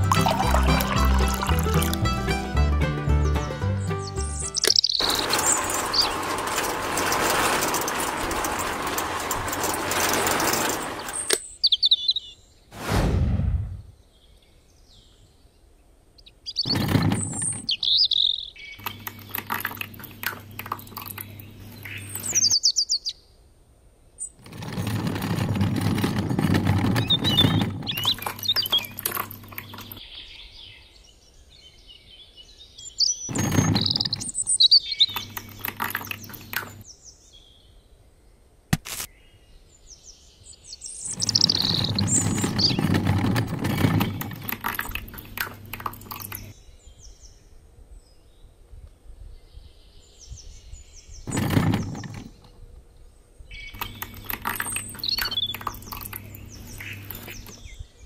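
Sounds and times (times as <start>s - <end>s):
birds chirping: 0.0s - 2.5s, 3.3s - 12.6s, 13.7s - 23.3s, 24.2s - 37.9s, 39.1s - 47.4s, 49.6s - 58.0s
gritty rushing noise: 5.0s - 11.4s, 12.7s - 13.9s, 41.1s - 46.5s
small electric motor humming: 53.8s - 57.7s.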